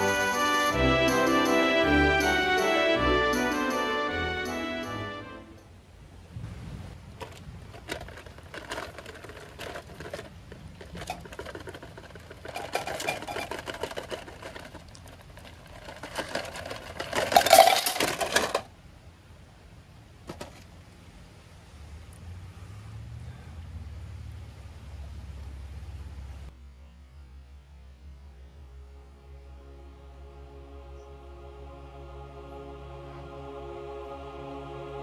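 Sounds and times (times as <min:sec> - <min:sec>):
rustling of handled objects: 0:07.0 - 0:18.7
objects clicking: 0:07.2 - 0:18.6.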